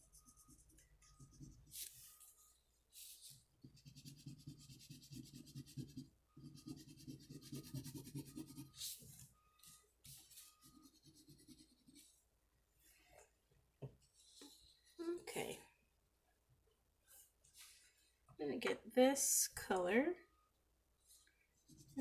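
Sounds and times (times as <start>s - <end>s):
crayon scratching on paper: 3.1s - 9.0s, 10.1s - 12.1s.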